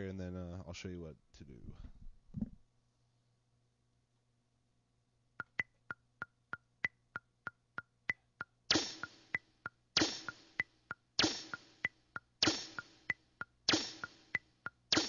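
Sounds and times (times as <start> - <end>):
metronome clicking: 5.4 - 15.0.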